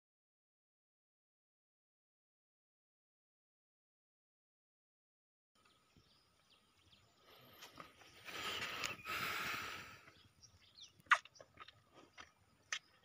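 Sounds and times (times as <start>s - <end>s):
wet sucking clicks: 8.4s - 10.2s, 10.9s - 13.0s.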